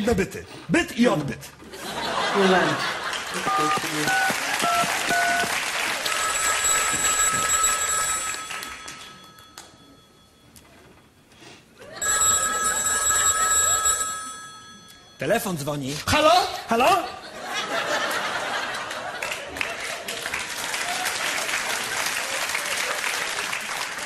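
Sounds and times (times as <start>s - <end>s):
audience laughter: 1.6s - 4.6s, 16.6s - 20.6s, 21.3s - 23.8s
desk telephone ringing: 3.3s - 11.2s, 11.9s - 16.1s
phone keypad tones: 3.4s - 11.0s.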